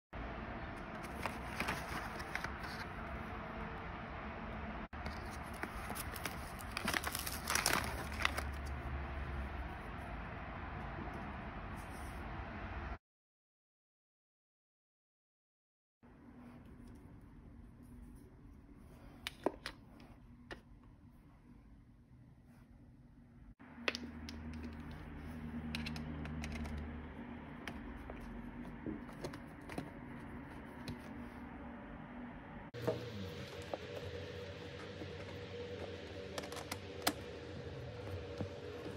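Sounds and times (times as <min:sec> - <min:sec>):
plastic blister pack crinkling: 0:05.1 - 0:08.7
low steady hum: 0:16.1 - 0:38.9.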